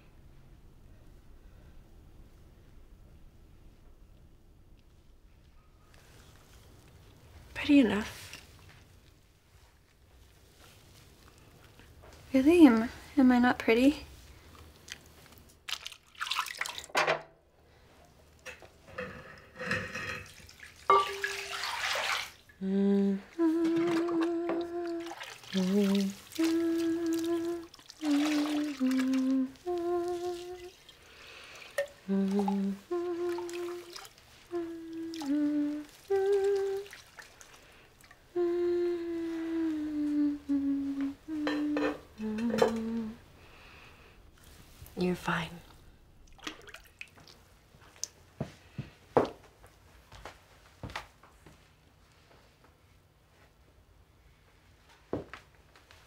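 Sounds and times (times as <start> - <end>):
bath water splashing and dripping: 14.5 - 17.0, 20.2 - 22.6, 23.6 - 38.3, 46.2 - 48.2
woman humming: 22.6 - 30.8, 32.0 - 37.0, 38.3 - 43.3.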